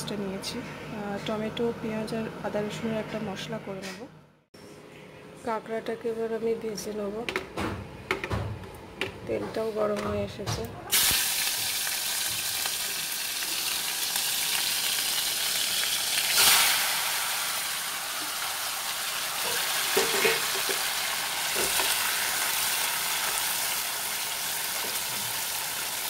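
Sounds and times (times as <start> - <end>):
food sizzling in hot oil: 10.9 - 26.0.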